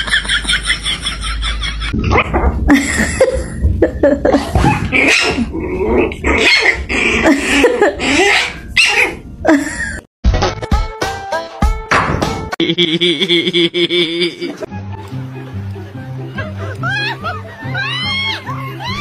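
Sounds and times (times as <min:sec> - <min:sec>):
dogs barking and growling: 0:01.8 - 0:09.3.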